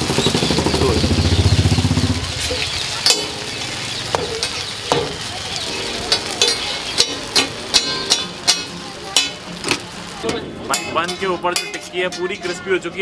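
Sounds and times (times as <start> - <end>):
food sizzling in oil: 0.0 - 13.0
metal spatula clacking on griddle: 3.0 - 3.5, 4.1 - 5.2, 6.1 - 12.6.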